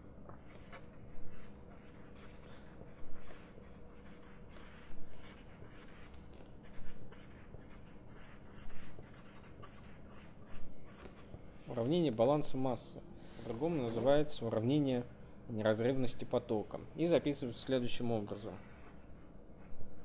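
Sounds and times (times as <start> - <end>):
marker scratching on paper: 0.3 - 11.4, 18.2 - 20.0.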